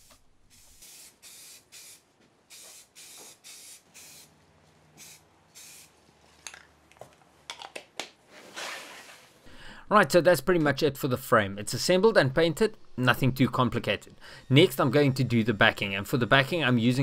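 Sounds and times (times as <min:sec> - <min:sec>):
spray paint can hissing: 0:00.5 - 0:04.3, 0:05.0 - 0:06.0.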